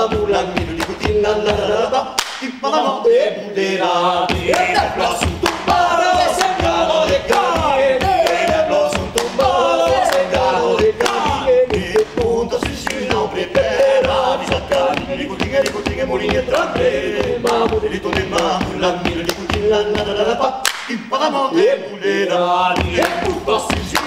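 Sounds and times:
male group singing a cappella: 0.0 - 24.0
hand-clapping: 0.7 - 1.2, 2.2 - 2.6, 4.5 - 19.7, 20.6 - 21.0, 22.8 - 24.0
foot stomping on wooden boards: 4.4 - 20.2.

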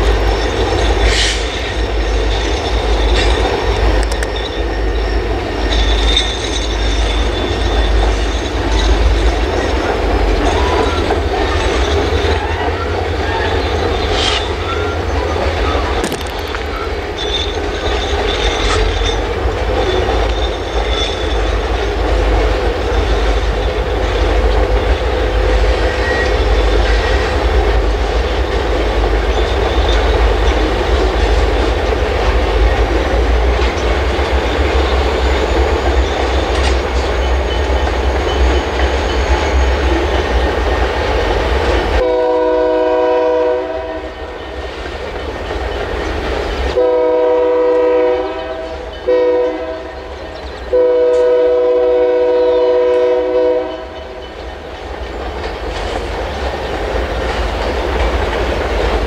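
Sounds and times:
train cars rumbling: 0.0 - 59.0
wheels clacking over rail joints: 0.0 - 59.0
locomotive air horn: 42.0 - 44.3, 46.8 - 54.2.

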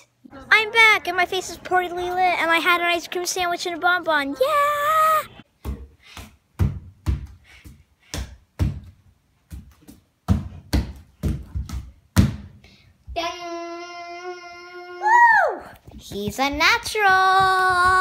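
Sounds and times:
bare feet stamping on wooden floor: 5.6 - 12.6, 15.9 - 18.0.

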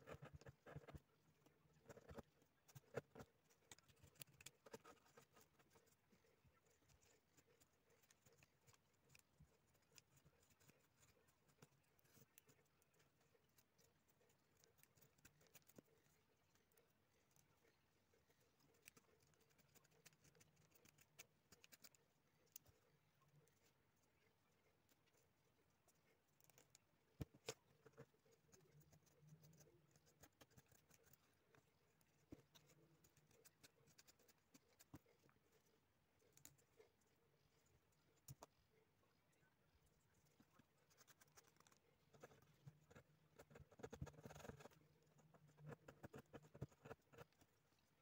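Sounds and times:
knife shaving wood: 0.0 - 37.0.

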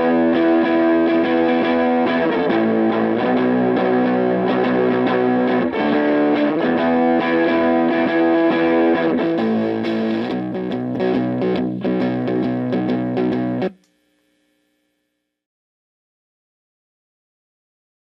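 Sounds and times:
fuzz electric guitar chords: 0.0 - 13.8.

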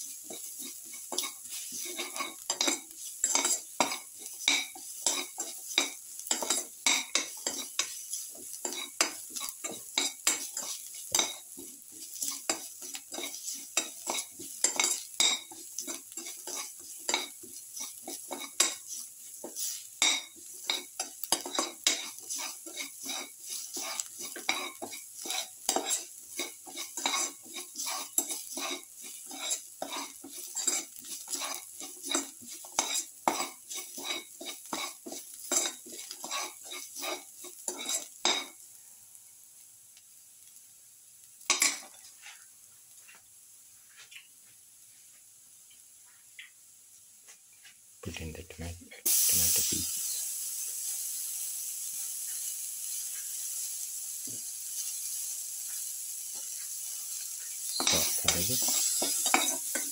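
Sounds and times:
onions sizzling in oil: 0.0 - 48.0, 49.0 - 59.9
spatula scraping metal pan: 0.1 - 38.5, 55.7 - 59.9.

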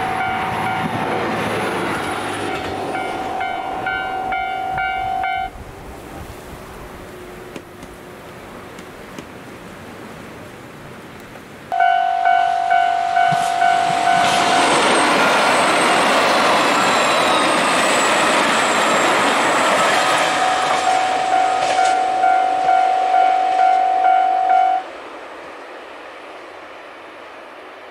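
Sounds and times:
level crossing warning bell: 0.0 - 5.6, 11.7 - 24.9
train passing on rails: 0.0 - 27.9.

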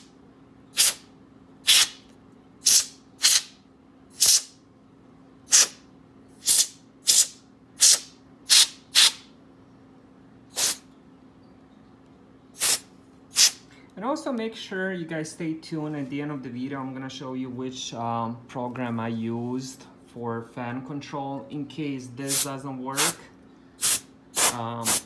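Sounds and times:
compressed air hissing bursts: 0.7 - 2.0, 2.6 - 4.6, 5.5 - 5.8, 6.4 - 9.3, 10.5 - 10.8, 12.6 - 13.6, 22.3 - 23.2, 23.8 - 25.0.

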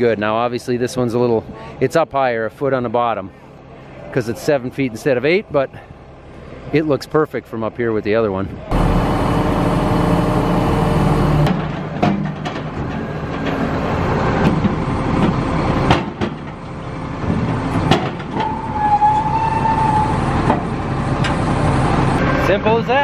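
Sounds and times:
diesel machinery rumble: 0.0 - 23.0
steady whine: 8.5 - 15.8.

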